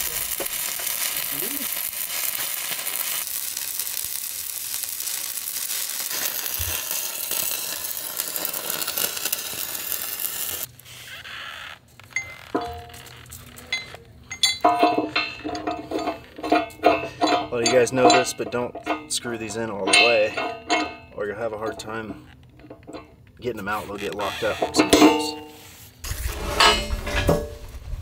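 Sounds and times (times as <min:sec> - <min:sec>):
welding arc crackling: 0:00.0 - 0:26.9
light metal clinks: 0:12.1 - 0:21.2.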